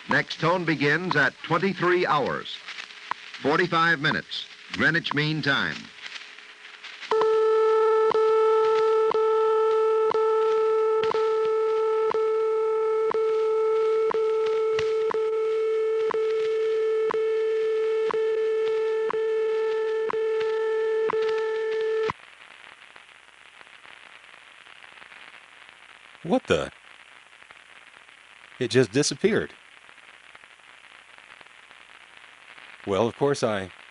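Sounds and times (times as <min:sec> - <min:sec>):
steady radio tone: 0:00.0 - 0:22.1
faint radio static: 0:00.0 - 0:33.9
radio ticks: 0:00.1 - 0:22.2.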